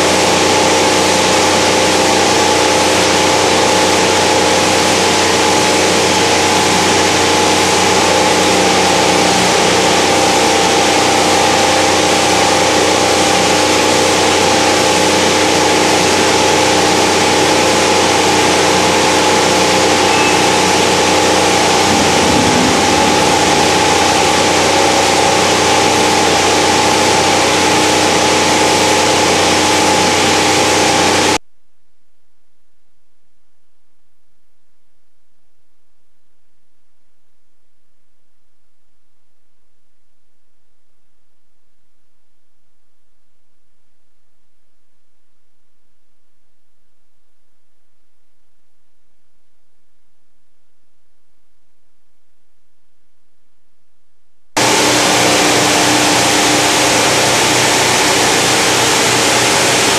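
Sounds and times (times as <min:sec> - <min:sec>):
washing tanks machine hum: 0:00.0 - 0:31.4, 0:54.6 - 0:59.9.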